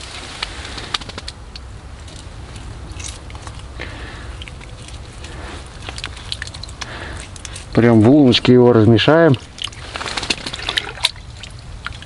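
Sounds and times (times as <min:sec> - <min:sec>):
damp groundbait squelching: 0:02.1 - 0:12.0.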